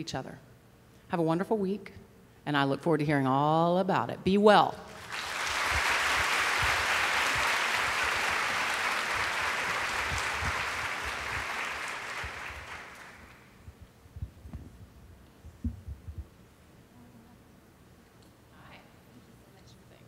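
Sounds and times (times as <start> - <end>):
audience applauding: 4.9 - 13.6
low thumps: 13.7 - 16.3.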